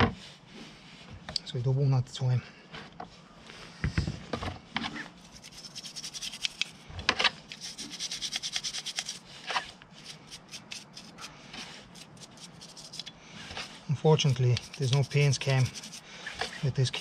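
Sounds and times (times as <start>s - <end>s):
brush scrubbing metal part: 5.2s - 6.8s, 7.5s - 17.0s.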